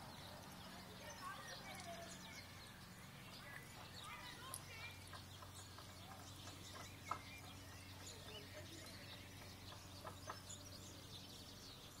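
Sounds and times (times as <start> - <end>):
faint birds chirping: 0.0 - 12.0.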